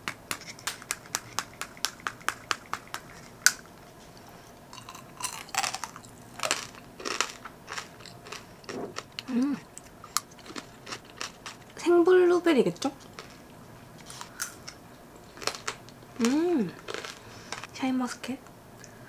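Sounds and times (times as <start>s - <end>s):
crunching and chewing candy: 4.7s - 11.8s, 13.0s - 13.4s, 14.0s - 17.7s.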